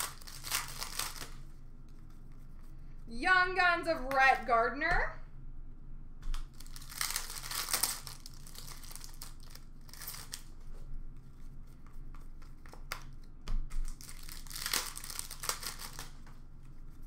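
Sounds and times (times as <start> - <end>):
wrappers crinkling: 0.0 - 1.5, 6.4 - 10.7, 13.7 - 16.4
cards rustling: 0.0 - 2.8, 6.4 - 10.9, 13.8 - 16.4.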